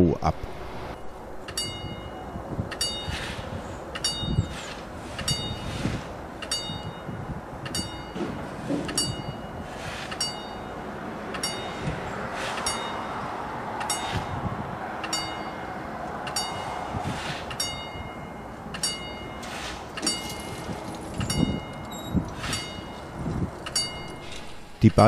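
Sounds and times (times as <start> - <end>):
low rumble: 0.0 - 2.7
level-crossing warning bell ringing: 1.4 - 24.8.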